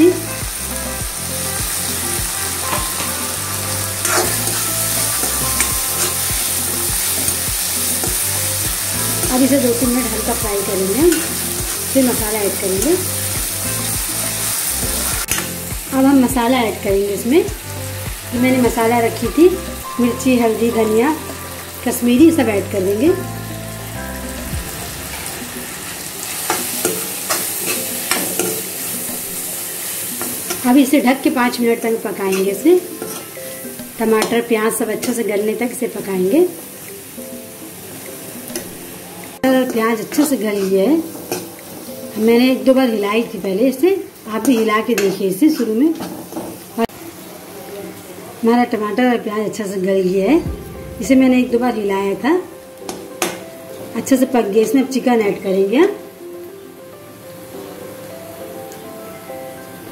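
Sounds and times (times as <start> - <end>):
vegetables sizzling in oil: 0.0 - 50.4, 51.0 - 59.9
metal spatula scraping pan: 1.8 - 8.1, 32.3 - 34.4.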